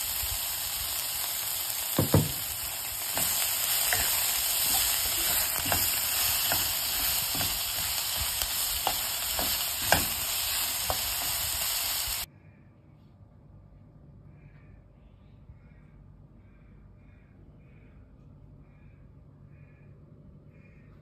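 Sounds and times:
vegetables sizzling in oil: 0:00.0 - 0:12.3
spatula tapping and scraping pan: 0:02.0 - 0:11.9.

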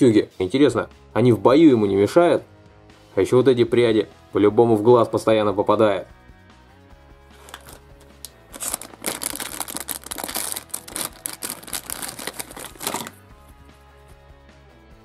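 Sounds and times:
quiet background music: 0:00.0 - 0:15.0
plastic foil packet crinkling: 0:07.4 - 0:07.8, 0:08.5 - 0:13.2.

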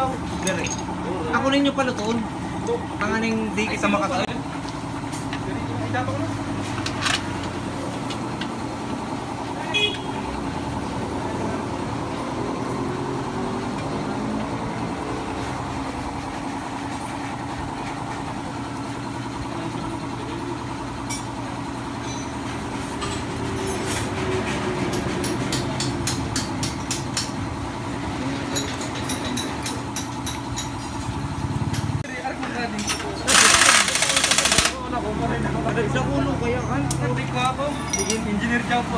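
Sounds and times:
steady mechanical drone: 0:00.0 - 0:38.9
hand tools clinking on metal: 0:00.3 - 0:01.0, 0:28.4 - 0:30.9, 0:37.4 - 0:38.4.

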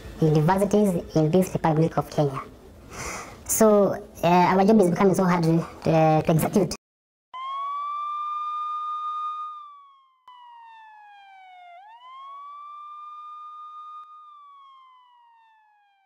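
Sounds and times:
siren wailing: 0:07.4 - 0:16.0.

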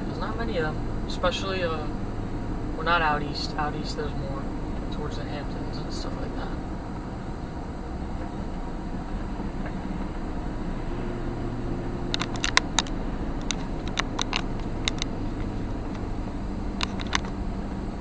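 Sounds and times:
car engine and tyre hum: 0:00.0 - 0:18.0
sharp clicks: 0:12.1 - 0:16.1, 0:16.8 - 0:17.4.

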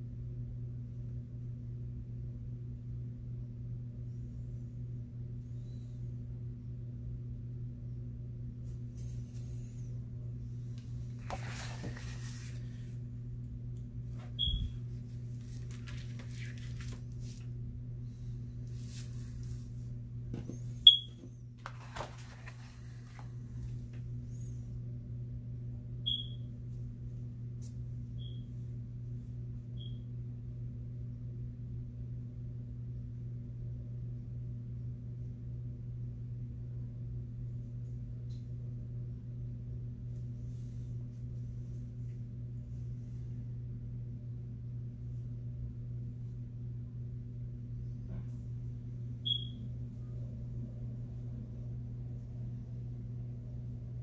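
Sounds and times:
low electrical hum: 0:00.0 - 0:54.0
paper and pen rustling: 0:10.8 - 0:13.0, 0:15.0 - 0:17.5, 0:18.6 - 0:19.8, 0:21.6 - 0:23.8
short high-pitched chirps: 0:14.4 - 0:14.7, 0:26.1 - 0:26.4, 0:49.3 - 0:49.6.

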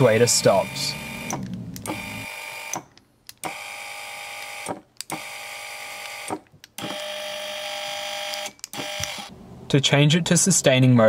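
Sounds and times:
linear actuator motors whining: 0:00.1 - 0:02.8.

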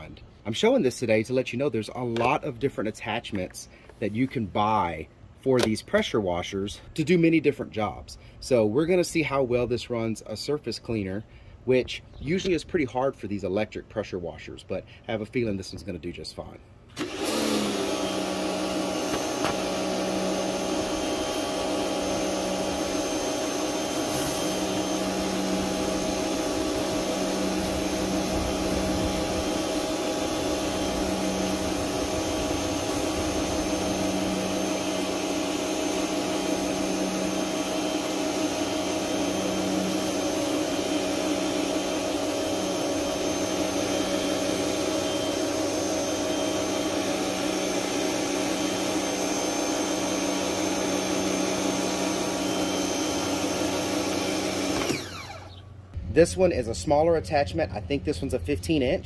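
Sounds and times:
pressure washer motor humming: 0:17.0 - 0:55.6.

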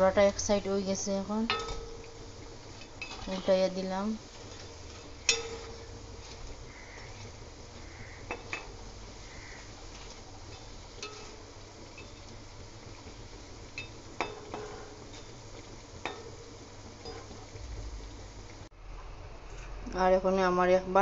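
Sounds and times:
fritters sizzling in hot oil: 0:00.0 - 0:18.8
metal spatula clinking on pan: 0:01.4 - 0:02.2, 0:04.6 - 0:06.1, 0:10.5 - 0:12.4, 0:13.8 - 0:15.4, 0:16.0 - 0:16.4, 0:17.0 - 0:17.5.

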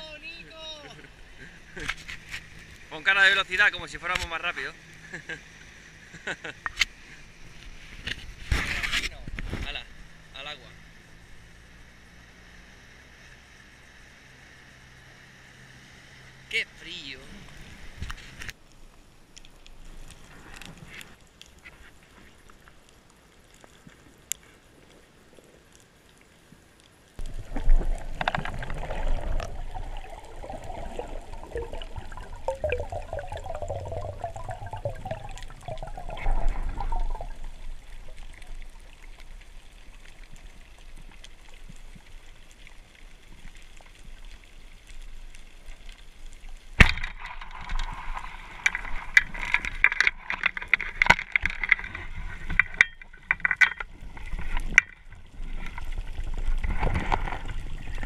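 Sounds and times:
crackling water noise: 0:00.0 - 0:58.0
muffled underwater gurgling: 0:27.2 - 0:38.4.

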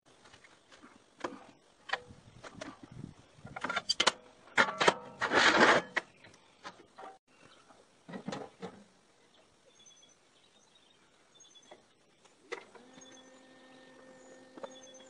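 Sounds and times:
metal scrape: 0:03.6 - 0:06.0.

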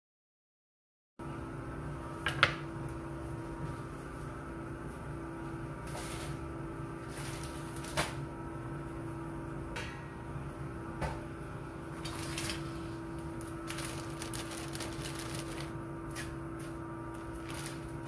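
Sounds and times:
kitchen hum with low tone: 0:01.2 - 0:18.0
plastic bag rustling: 0:12.0 - 0:16.3, 0:17.2 - 0:18.0.

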